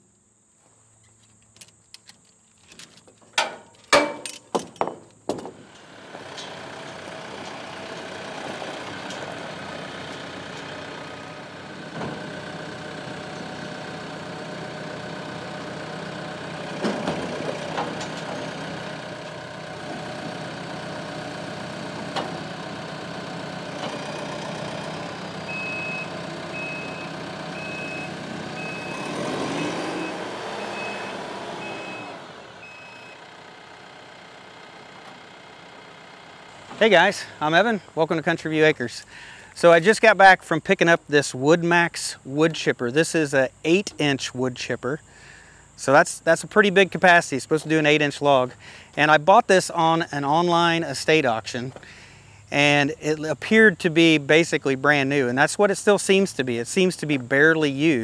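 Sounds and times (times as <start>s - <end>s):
tractor engine running: 3.0s - 58.0s
reversing alarm beeping: 25.4s - 33.2s.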